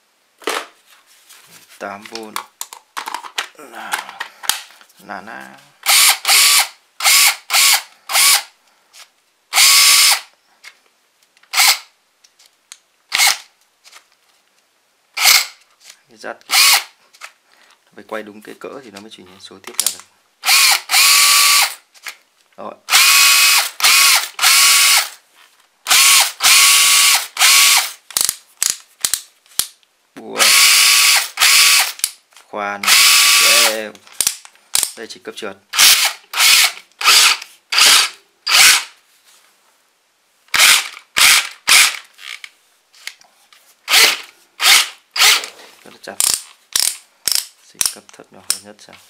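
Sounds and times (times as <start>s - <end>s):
cordless drill motor whining: 5.8s - 8.5s, 9.6s - 10.2s, 16.5s - 16.9s, 20.4s - 21.8s, 22.9s - 25.2s, 25.9s - 27.9s, 30.4s - 32.0s, 32.8s - 33.7s, 35.8s - 38.9s, 40.6s - 42.4s, 43.9s - 45.5s.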